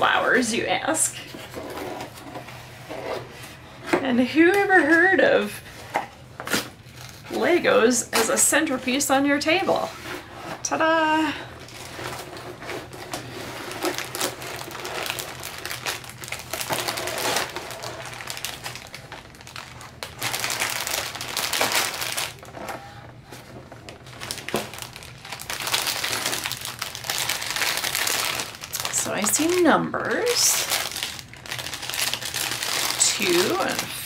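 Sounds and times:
plastic bags crinkling: 0:11.0 - 0:34.0.

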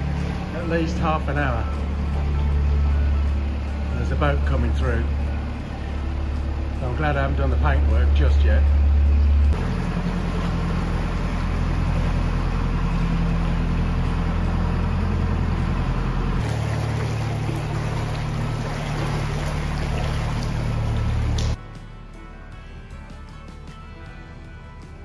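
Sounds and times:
boat engine humming: 0:00.0 - 0:25.0
water wash: 0:16.4 - 0:21.6.

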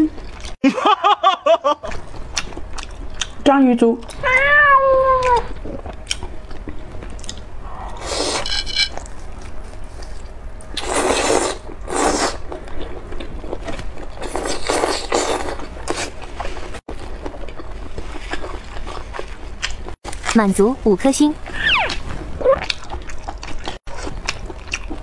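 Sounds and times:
person chewing noisily: 0:01.9 - 0:03.4, 0:05.2 - 0:08.4, 0:09.0 - 0:20.3, 0:21.9 - 0:25.0.

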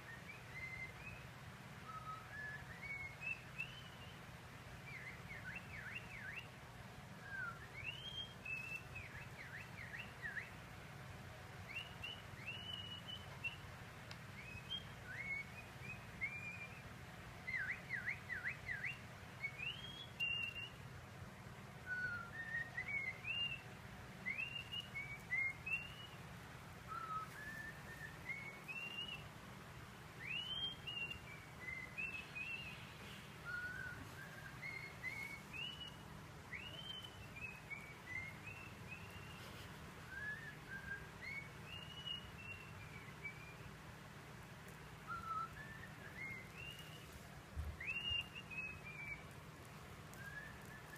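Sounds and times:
bird whistling from speaker: 0:00.0 - 0:01.2, 0:01.8 - 0:04.2, 0:04.9 - 0:06.5, 0:07.2 - 0:10.5, 0:11.7 - 0:13.6, 0:14.4 - 0:16.8, 0:17.5 - 0:20.8, 0:21.8 - 0:23.6, 0:24.2 - 0:26.2, 0:26.9 - 0:29.2, 0:30.2 - 0:43.7, 0:45.0 - 0:47.1, 0:47.8 - 0:49.2, 0:50.2 - 0:50.9
faint steady hum: 0:00.0 - 0:50.9.

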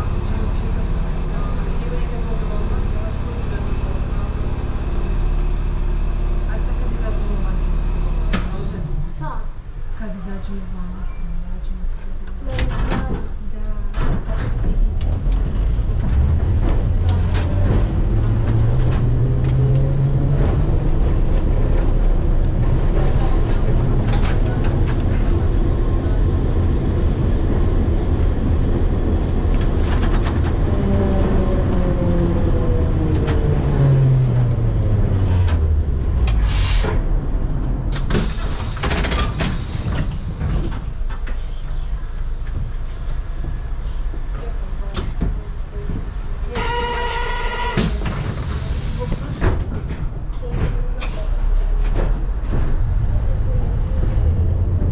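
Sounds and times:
tram motor whine: 0:14.8 - 0:43.6, 0:46.3 - 0:50.7.

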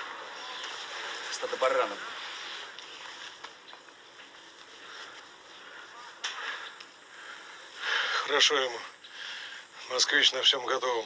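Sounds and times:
background hiss: 0:00.0 - 0:11.0
short rustle: 0:00.1 - 0:06.7
faint clicks: 0:02.7 - 0:05.2, 0:06.2 - 0:07.0.

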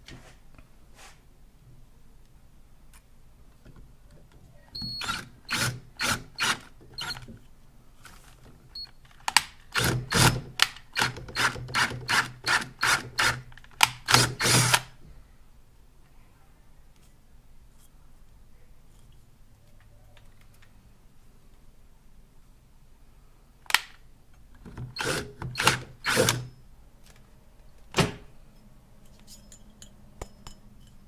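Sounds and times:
cordless drill boring metal: 0:05.0 - 0:07.2, 0:11.0 - 0:13.4, 0:14.1 - 0:14.9, 0:24.9 - 0:26.5.

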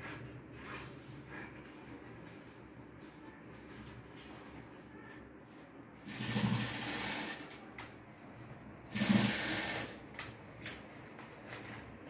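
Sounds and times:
rustling and scraping of handbags: 0:00.0 - 0:06.3.

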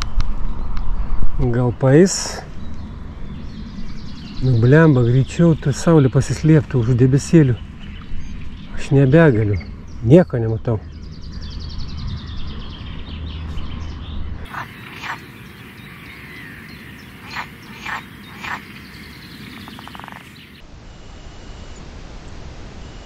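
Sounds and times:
birds chirping and warbling: 0:00.0 - 0:20.7
loud short bird calls: 0:14.5 - 0:20.6
rattling bird call: 0:16.2 - 0:20.4.

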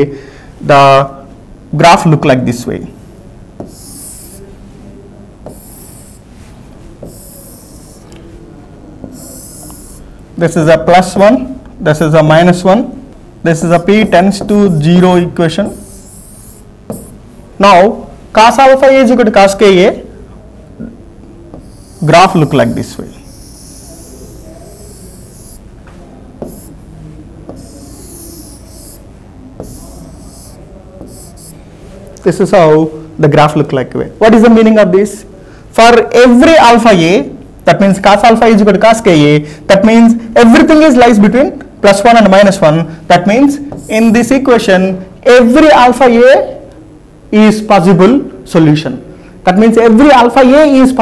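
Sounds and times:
pen tapping board: 0:03.6 - 0:04.4, 0:05.4 - 0:06.2, 0:07.0 - 0:08.1, 0:14.4 - 0:14.6, 0:15.9 - 0:17.2, 0:21.5 - 0:22.0, 0:26.4 - 0:26.8, 0:27.5 - 0:29.0, 0:29.6 - 0:31.6
chalk scraping on chalkboard: 0:03.6 - 0:04.5, 0:05.4 - 0:08.1, 0:09.0 - 0:10.0, 0:15.7 - 0:17.2, 0:21.5 - 0:22.6, 0:23.2 - 0:25.6, 0:26.4 - 0:26.8, 0:27.5 - 0:31.6.

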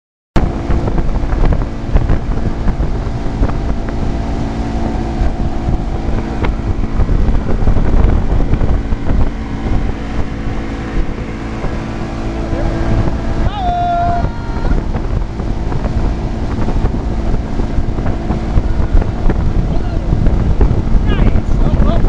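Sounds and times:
motorboat engine running: 0:00.4 - 0:22.0
rush of boat wake: 0:00.4 - 0:22.0
wind buffeting microphone: 0:00.4 - 0:22.0.

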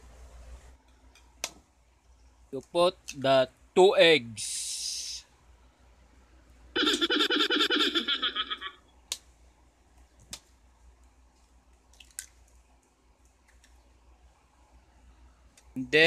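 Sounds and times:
person giggling: 0:06.8 - 0:08.8.

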